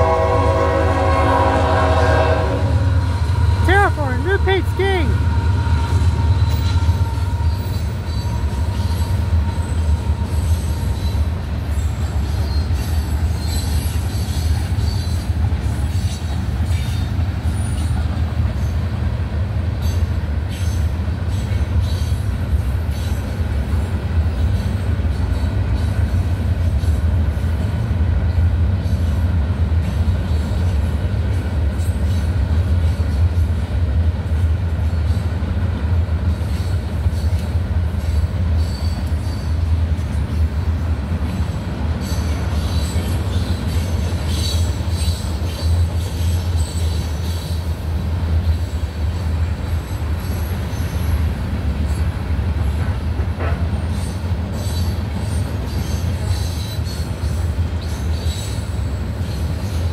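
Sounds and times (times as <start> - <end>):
freight train rumbling past: 0.0 - 59.9
wheel squeal: 6.4 - 15.3, 38.6 - 39.6.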